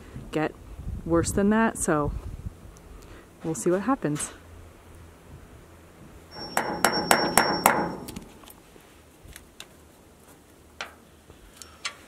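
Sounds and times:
hammer striking wood: 0:06.4 - 0:08.4.

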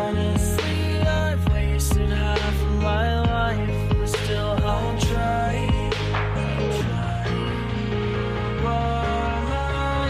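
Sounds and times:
deep bass line: 0:00.0 - 0:10.0
sliding lead melody: 0:00.0 - 0:10.0
drum beat: 0:03.3 - 0:06.5.

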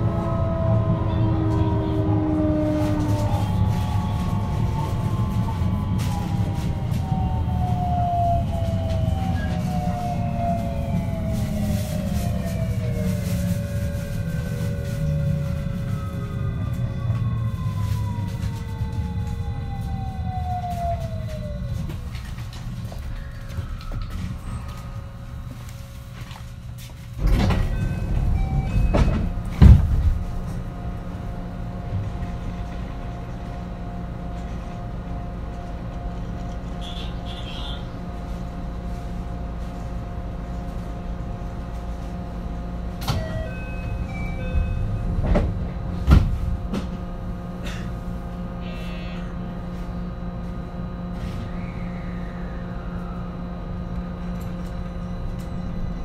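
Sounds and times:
electric train equipment humming: 0:00.0 - 0:56.0
knocks and clunks: 0:27.2 - 0:30.6.

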